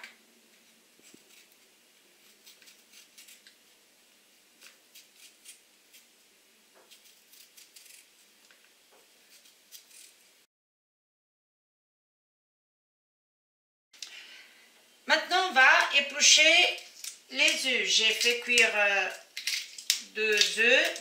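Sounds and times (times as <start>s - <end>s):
knife cutting radish: 1.0s - 1.6s, 2.2s - 3.6s, 4.6s - 6.1s, 6.8s - 8.3s, 9.1s - 10.2s.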